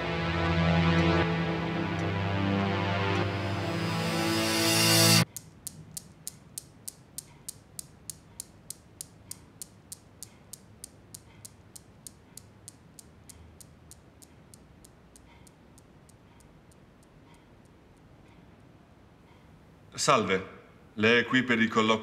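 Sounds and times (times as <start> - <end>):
newton's cradle balls clicking: 5.3 - 18.1.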